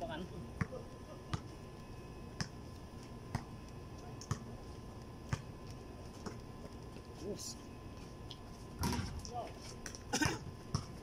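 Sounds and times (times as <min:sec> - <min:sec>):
basketball bouncing on court: 0:03.3 - 0:03.5, 0:04.3 - 0:04.5, 0:10.7 - 0:11.0.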